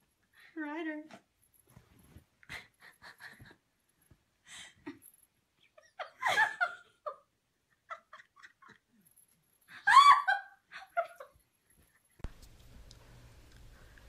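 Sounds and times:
person giggling: 4.6s - 9.1s.

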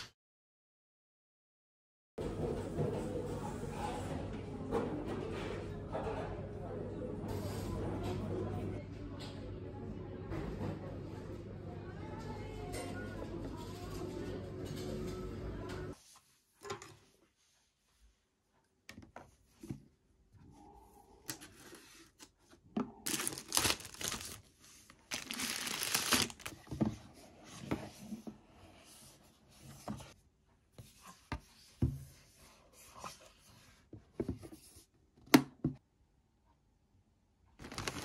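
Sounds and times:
packaging tearing and crinkling: 23.1s - 26.5s, 37.6s - 38.0s.

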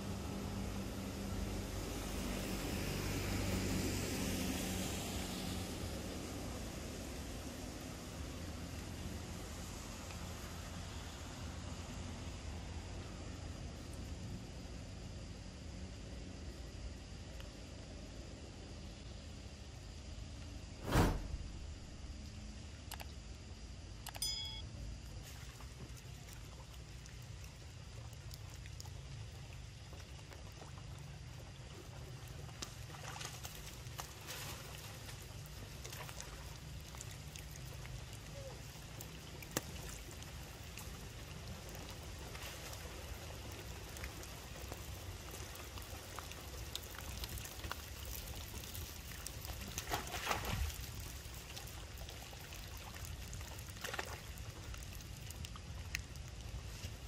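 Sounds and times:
trickling running water: 25.1s - 57.0s
water splashes: 25.2s - 57.0s.

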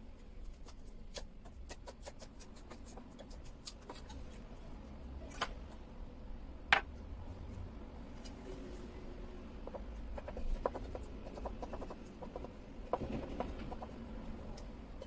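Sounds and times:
knife slicing green onions: 0.5s - 4.2s.

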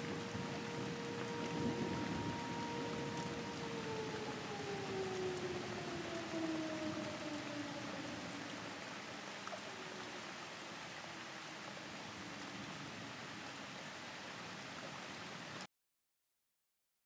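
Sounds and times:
air raid siren winding down: 0.0s - 10.3s
steady rain: 0.0s - 15.7s.

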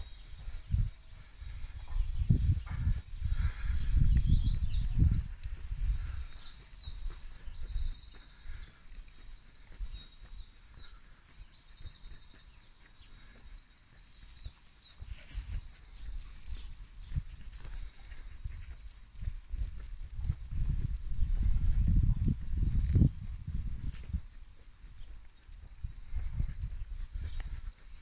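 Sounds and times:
low rumbling microphone noise: 0.0s - 8.8s, 15.0s - 24.6s
songbirds chirping: 0.0s - 28.0s.

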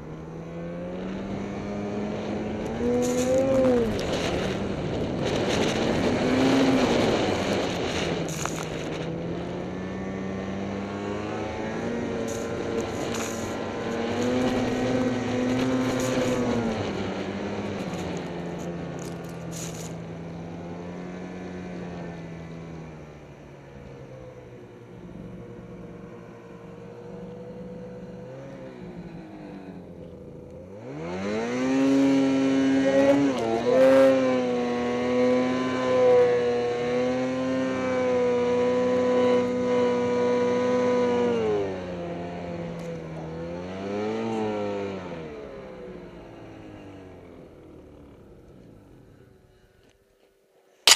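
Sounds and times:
snowmobile engine revving: 0.0s - 21.8s, 30.6s - 41.6s.

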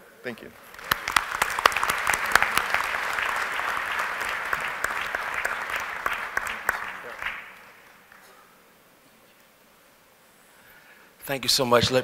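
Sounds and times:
audience applauding: 0.5s - 8.3s.

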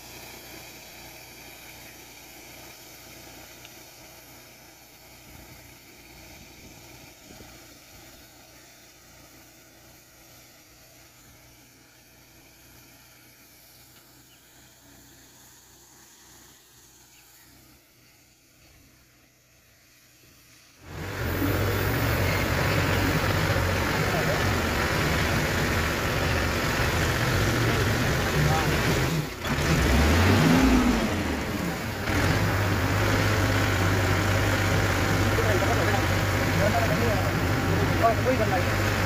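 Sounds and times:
distant crop sprayer running: 0.0s - 39.0s
tractor engine running: 0.0s - 39.0s.

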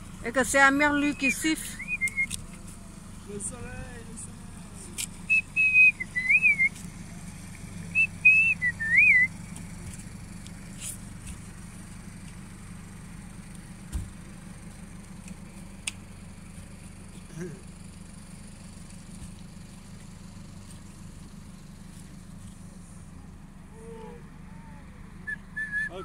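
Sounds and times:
low motor hum: 0.0s - 26.0s
whistled phrases with warble: 0.8s - 2.4s, 5.3s - 6.8s, 8.0s - 9.3s, 25.3s - 26.0s.

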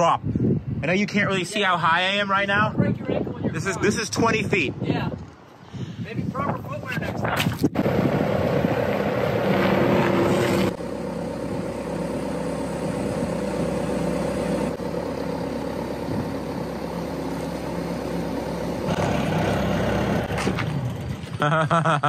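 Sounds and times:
loader engine running: 7.8s - 21.9s.

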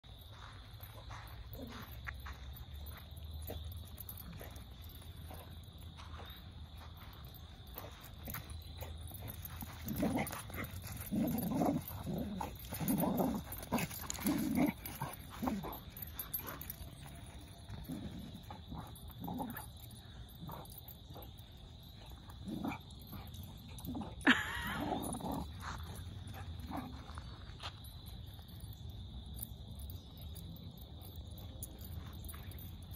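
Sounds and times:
dog growling playfully: 9.6s - 15.8s, 17.8s - 19.6s, 22.4s - 22.8s, 23.8s - 25.7s.

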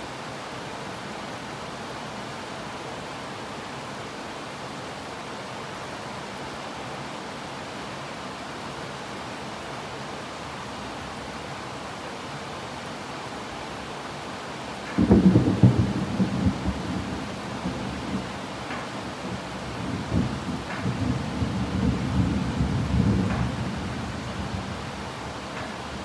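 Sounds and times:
heavy rain: 0.0s - 26.0s
thunderclap rumbling: 15.0s - 24.9s.

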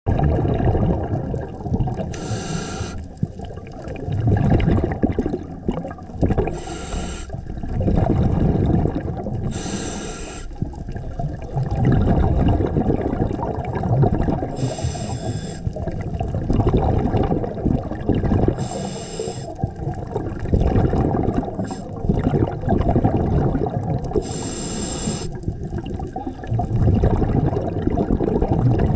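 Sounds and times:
exhaled air bubbling: 0.1s - 28.9s
regulator hissing inhale: 2.1s - 3.2s, 6.5s - 7.4s, 9.4s - 10.6s, 14.6s - 15.8s, 18.6s - 19.6s, 21.6s - 22.0s, 24.2s - 25.4s.

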